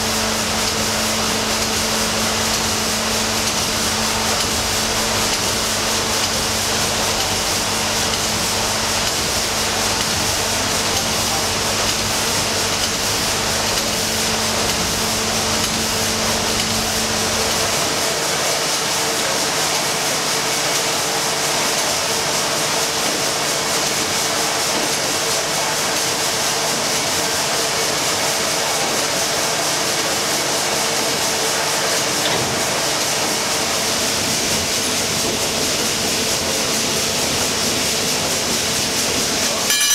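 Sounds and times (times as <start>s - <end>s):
machinery noise: 0.0s - 18.3s, 31.8s - 39.9s.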